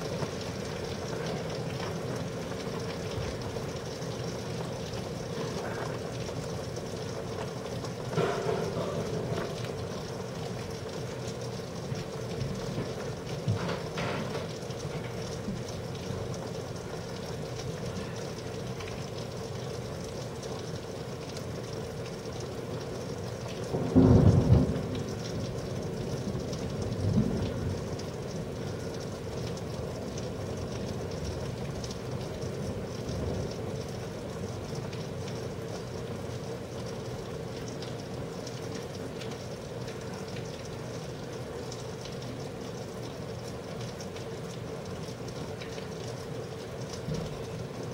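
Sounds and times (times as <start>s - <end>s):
steady rain: 0.0s - 47.9s
thunder rumbling: 23.7s - 28.2s.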